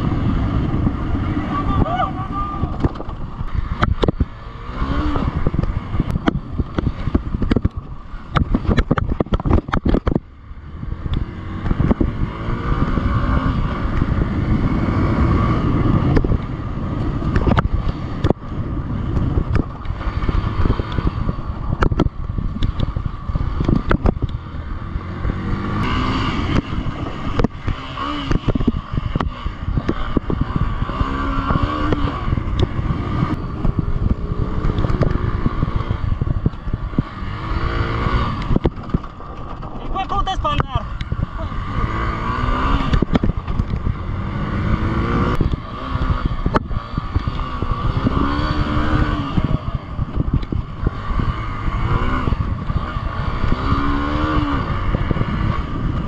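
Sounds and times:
motorcycle engine revving: 0.0 - 56.0
sharp knocks and rattles: 38.5 - 39.9.

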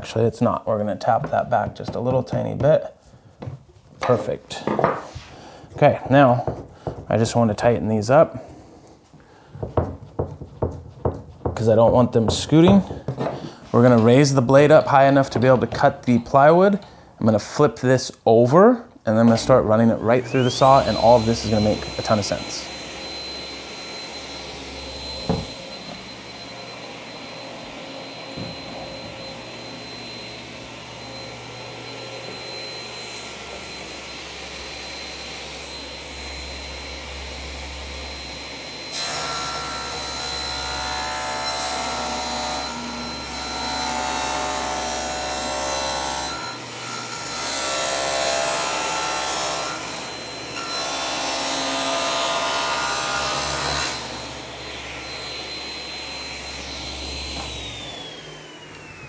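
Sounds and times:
table saw whine: 19.2 - 59.0.

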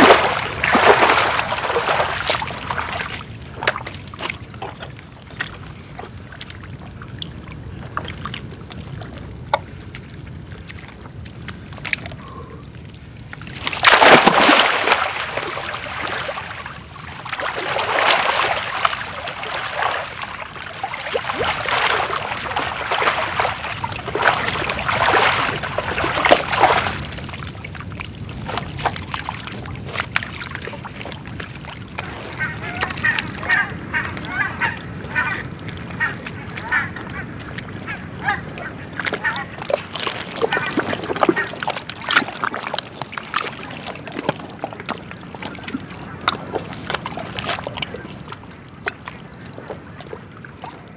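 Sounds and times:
splashing and squelching in mud: 0.0 - 50.9.

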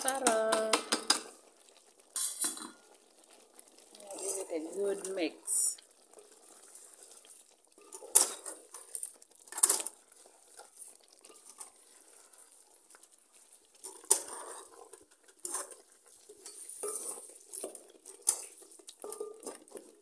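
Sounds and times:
spoon stirring thick stew: 0.0 - 20.0
spoon knocking against pot: 0.1 - 1.3.

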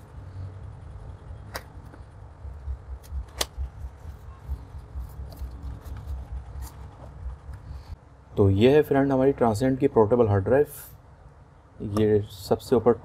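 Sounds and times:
low rumble: 0.0 - 8.0
sharp snaps: 3.0 - 3.6.

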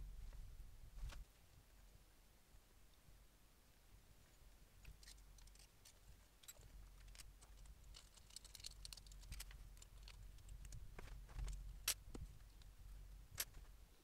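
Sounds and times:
hands clicking and tapping metal parts: 4.8 - 12.2.

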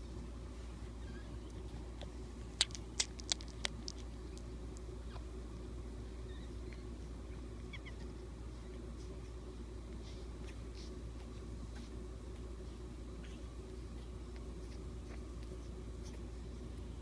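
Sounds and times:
steady low hum: 0.0 - 17.0
puppy squeaks: 1.0 - 1.6, 6.2 - 6.9, 7.6 - 8.2
puppies sucking clicks: 1.1 - 5.4, 6.2 - 16.8.

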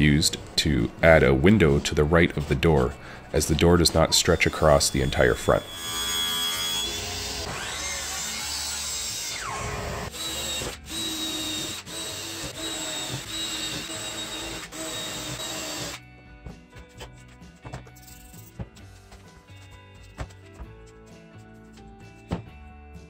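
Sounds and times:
background music: 0.0 - 23.0
table saw cutting plastic: 3.8 - 16.0
cordless drill boring holes: 4.1 - 16.0.

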